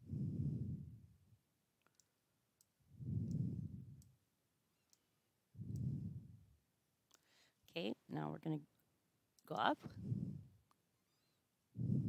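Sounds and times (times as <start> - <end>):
muffled puffs of noise: 0.0 - 1.2, 2.9 - 4.0, 5.6 - 6.5, 9.8 - 10.6, 11.8 - 12.0.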